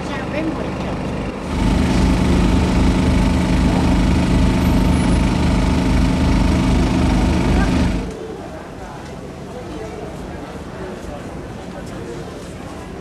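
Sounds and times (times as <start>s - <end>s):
engine running: 0.0s - 8.2s.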